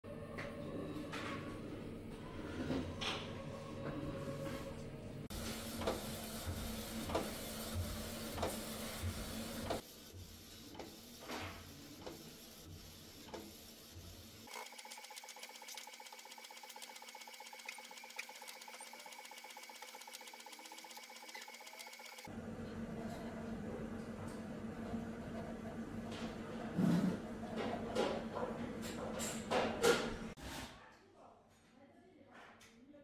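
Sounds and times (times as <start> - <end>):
printer machine hum with clicks: 14.5 - 22.3.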